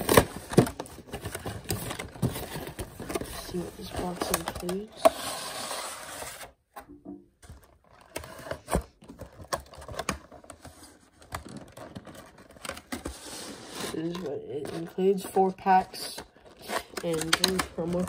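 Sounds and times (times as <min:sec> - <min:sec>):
cardboard sliding: 0:03.8 - 0:06.5.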